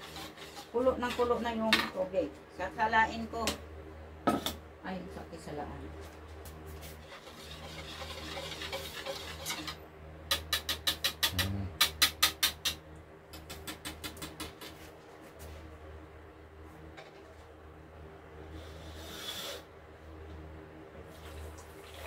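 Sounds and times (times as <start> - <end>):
steady low hum: 0.0 - 22.0
spoon scraping mesh strainer: 6.8 - 9.8.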